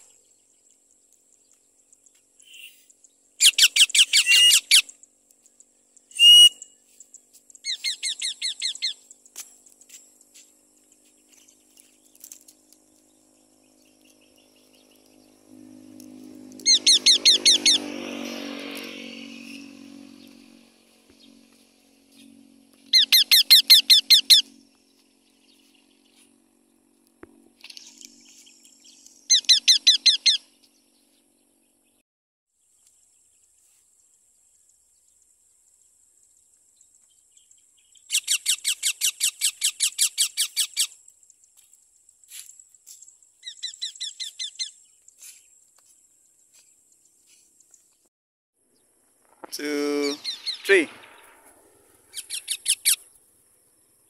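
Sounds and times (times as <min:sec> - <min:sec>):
parrot calling shrilly: 0:03.4 - 0:04.9, 0:06.1 - 0:06.6, 0:16.7 - 0:17.8, 0:22.9 - 0:24.4, 0:29.3 - 0:30.4.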